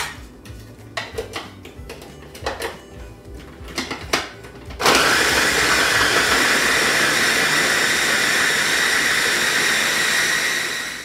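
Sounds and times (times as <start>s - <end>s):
electric food chopper running: 4.8s - 11.0s.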